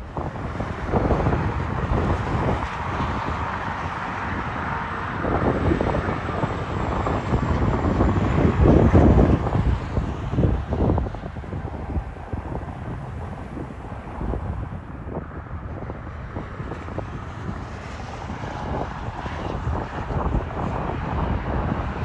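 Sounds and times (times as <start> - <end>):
highway traffic noise: 0.0 - 22.0
semi truck passing on highway: 0.0 - 22.0
wind buffeting microphone: 0.0 - 22.0.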